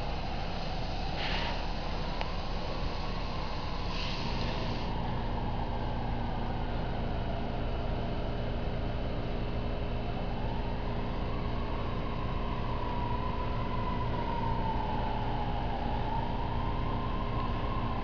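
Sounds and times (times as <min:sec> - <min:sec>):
vehicle engine idling: 0:00.0 - 0:13.1
faint siren wail: 0:00.0 - 0:18.0.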